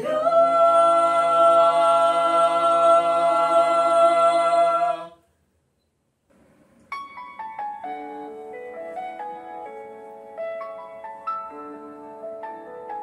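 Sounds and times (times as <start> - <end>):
vocal group singing a chord: 0.0 - 5.2.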